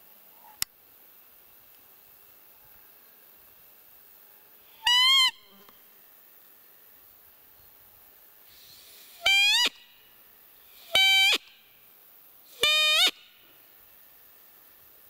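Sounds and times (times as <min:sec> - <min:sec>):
deer call squeaky tones: 0:04.8 - 0:05.5, 0:10.8 - 0:11.4, 0:12.6 - 0:13.2.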